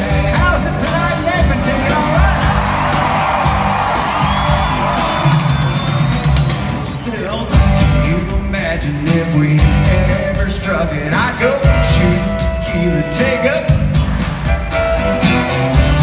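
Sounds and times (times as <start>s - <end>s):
person singing lead vocal: 0.0s - 2.9s, 6.7s - 13.8s
drum beat: 0.0s - 16.0s.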